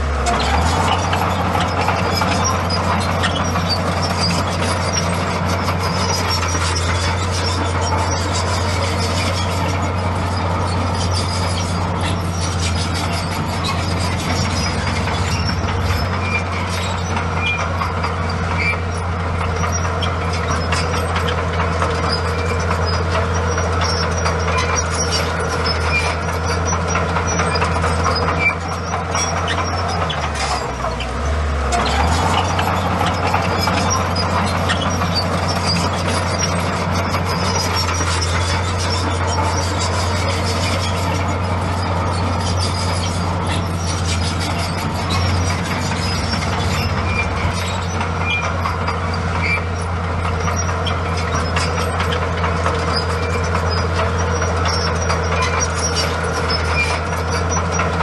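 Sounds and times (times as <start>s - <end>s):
bulldozer diesel engine running: 0.0s - 58.0s
machine squeal: 0.2s - 58.0s.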